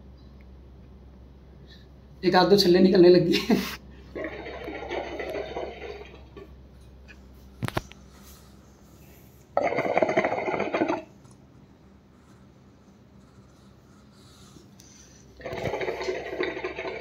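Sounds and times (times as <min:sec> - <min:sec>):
hookah water bubbling: 0:04.0 - 0:07.1, 0:09.5 - 0:11.2, 0:15.3 - 0:17.0.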